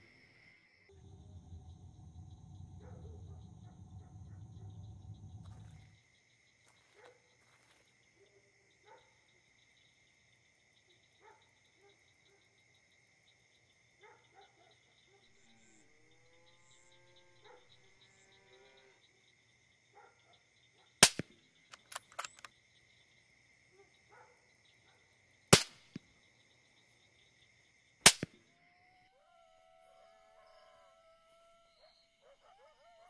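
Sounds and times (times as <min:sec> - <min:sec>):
crickets chirring: 0:00.0 - 0:33.0
rifle shots: 0:21.0 - 0:22.5, 0:25.5 - 0:26.0, 0:28.1 - 0:28.4
clatter of small clicks: 0:21.0 - 0:22.6.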